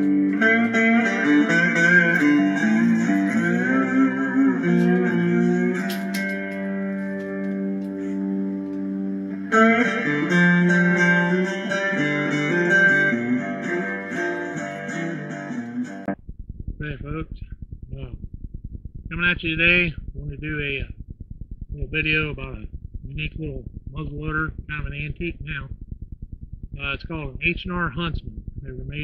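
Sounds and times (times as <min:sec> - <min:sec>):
guitar intro music: 0:00.0 - 0:16.2.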